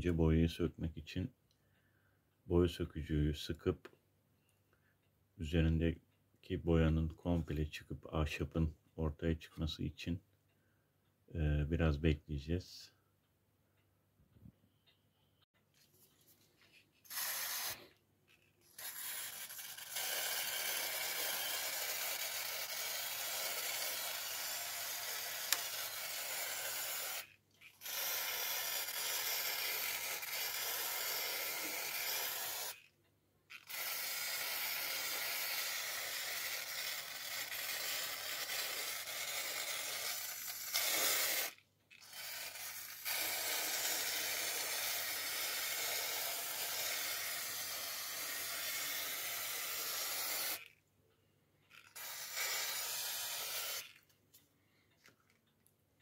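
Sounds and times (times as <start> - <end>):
aerosol can spraying: 17.0 - 17.9, 52.0 - 53.9.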